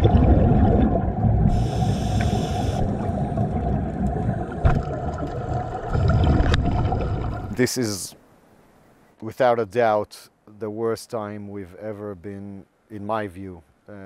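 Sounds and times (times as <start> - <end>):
underwater bubbles rumbling: 0.0 - 7.6
brief hiss: 1.5 - 2.9.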